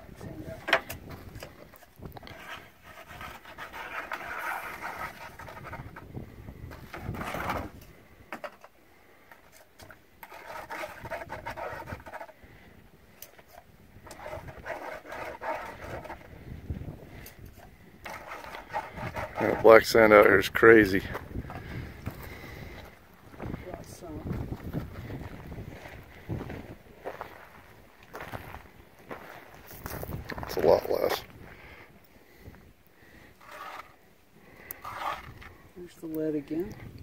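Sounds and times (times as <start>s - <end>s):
grit rubbing: 2.2s - 6.0s, 9.4s - 12.4s, 13.4s - 16.5s, 17.5s - 22.8s, 33.4s - 34.0s, 34.6s - 35.6s.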